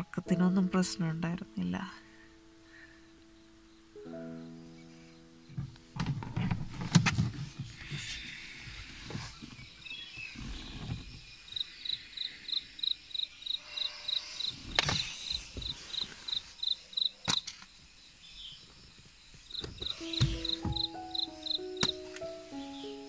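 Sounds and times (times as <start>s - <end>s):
music: 0.0s - 8.0s, 19.8s - 23.0s
cricket chirping: 2.0s - 6.0s, 7.8s - 23.0s
sharp knocks: 19.8s - 22.0s.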